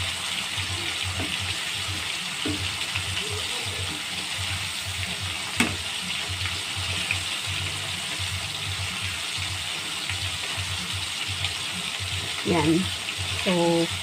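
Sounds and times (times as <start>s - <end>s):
food deep-frying in hot oil: 0.0s - 14.0s.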